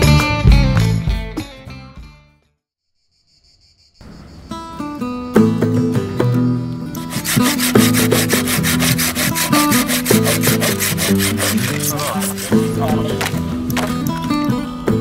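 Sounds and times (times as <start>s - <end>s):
background music: 4.6s - 15.0s
pruning saw rasping through branch: 7.0s - 13.4s.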